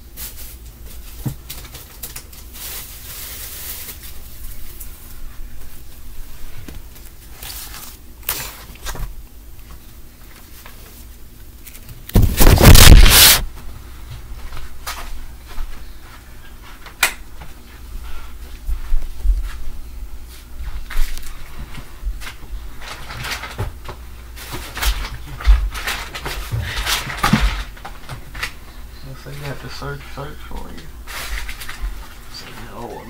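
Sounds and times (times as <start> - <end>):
loud scraping rustle: 12.2 - 13.4.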